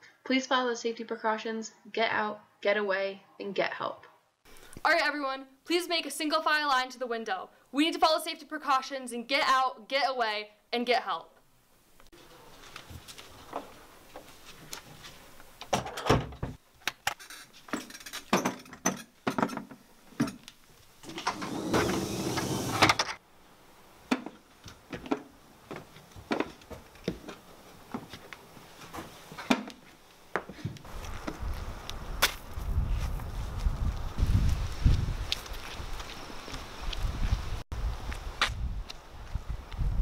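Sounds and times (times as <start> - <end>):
rustling: 12.0 - 15.6
wind rumbling on microphone: 30.9 - 40.0.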